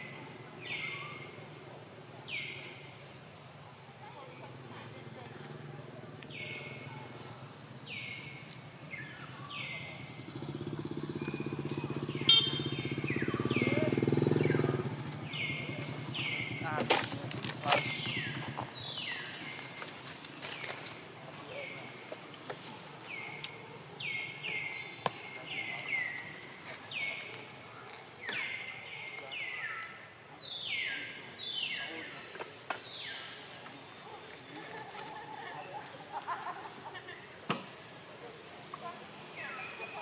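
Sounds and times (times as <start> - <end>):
bird calling: 7.8 - 20.8
motorcycle engine running: 10.0 - 19.2.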